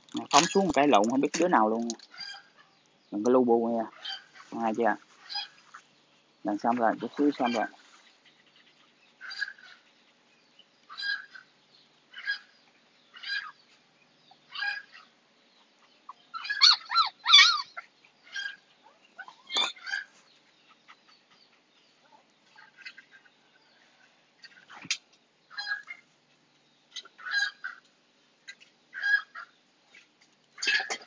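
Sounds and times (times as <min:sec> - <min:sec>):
puppy whimpering: 0:16.5 - 0:17.8.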